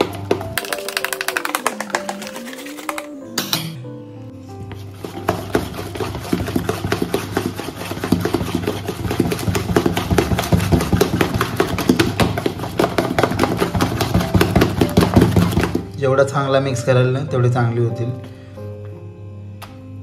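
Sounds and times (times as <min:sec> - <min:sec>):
batter beaten by hand in bowl: 0:00.0 - 0:03.6, 0:04.7 - 0:15.9.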